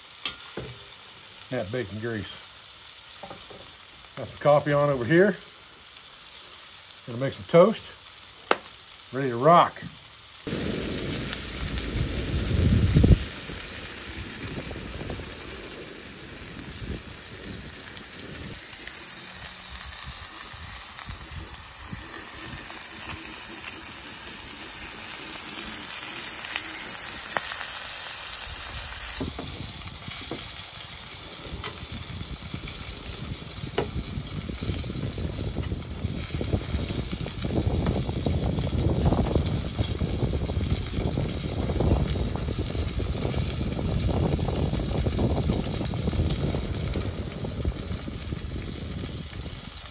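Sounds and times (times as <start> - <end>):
steak sizzling in a skillet: 0.0 - 49.9
low rumble: 10.5 - 18.6.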